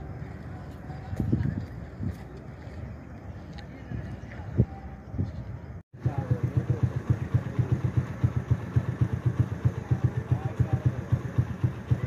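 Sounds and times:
small engine idling: 0:06.0 - 0:12.0.

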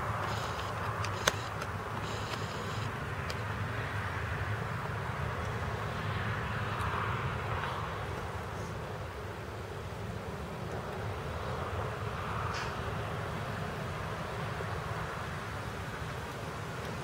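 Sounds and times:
outdoor background rumble: 0:00.0 - 0:17.0
sharp click: 0:00.2 - 0:03.4.

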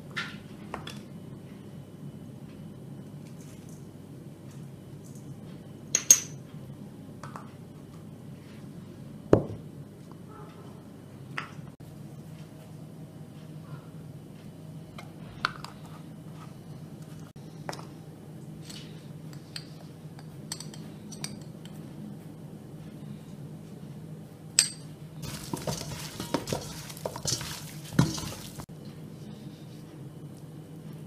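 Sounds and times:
low steady hum: 0:00.0 - 0:31.0
metal utensil clinking on bowl: 0:24.6 - 0:28.6.

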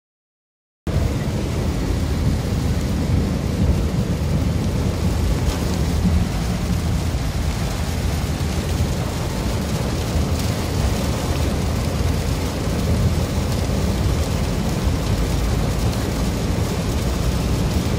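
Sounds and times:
low car rumble: 0:00.9 - 0:17.9
rain and tyres hissing: 0:00.9 - 0:17.9.

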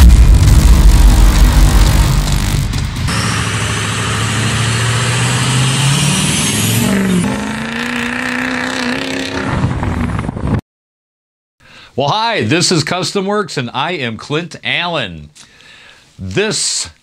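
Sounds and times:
car engine revving: 0:00.0 - 0:10.0.

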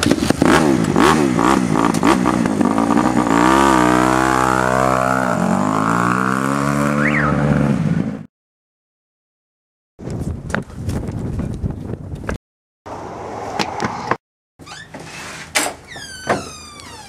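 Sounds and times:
dirt bike engine revving: 0:00.0 - 0:08.3.

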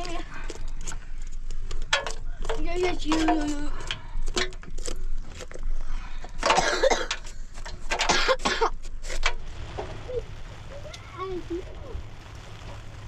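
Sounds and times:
sharp clicks and knocks: 0:00.0 - 0:10.0
person coughing: 0:06.5 - 0:07.2, 0:08.1 - 0:08.8.

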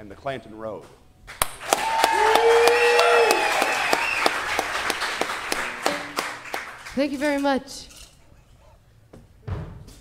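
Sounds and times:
audience clapping: 0:01.3 - 0:07.3
voices cheering: 0:01.6 - 0:05.1
long whoop: 0:01.7 - 0:04.3.

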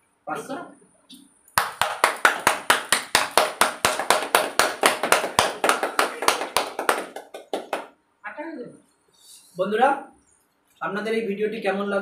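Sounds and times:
people clapping: 0:01.6 - 0:07.9.

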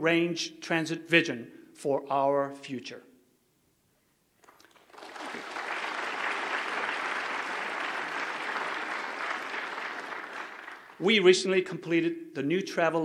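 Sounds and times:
audience applauding: 0:04.5 - 0:11.1.

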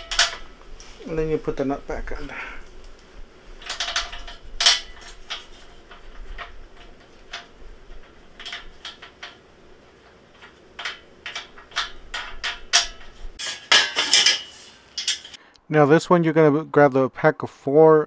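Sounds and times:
clicks and knocks of parts handled: 0:00.0 - 0:00.8, 0:02.8 - 0:15.4.

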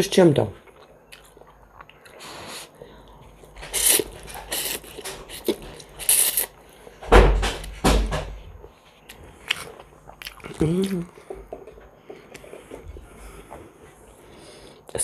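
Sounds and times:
person slurping noodles: 0:03.7 - 0:06.5.

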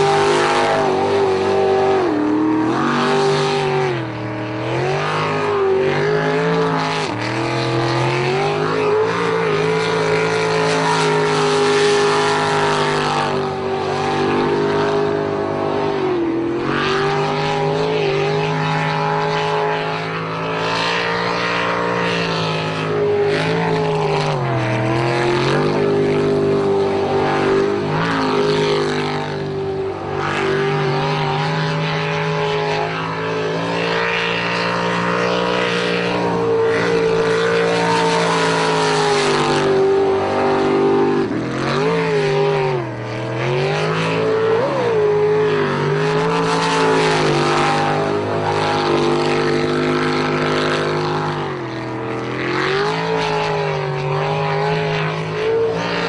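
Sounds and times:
boat engine at high revs: 0:00.0 - 0:56.0.

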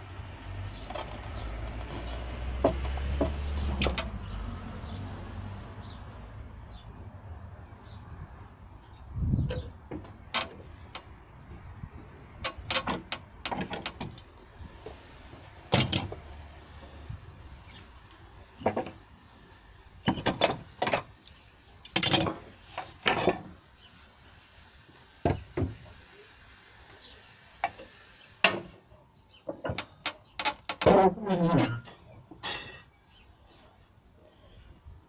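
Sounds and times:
wood and steel knocking: 0:01.4 - 0:04.2.

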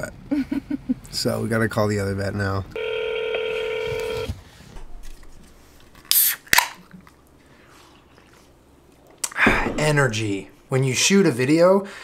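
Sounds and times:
telephone ringback tone: 0:02.8 - 0:04.4.

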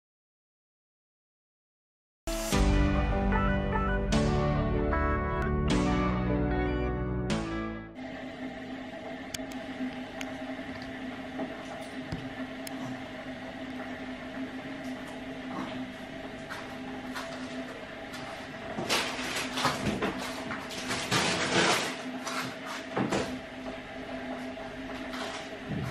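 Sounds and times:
intro music: 0:02.3 - 0:08.7
household appliance humming: 0:07.6 - 0:25.9.

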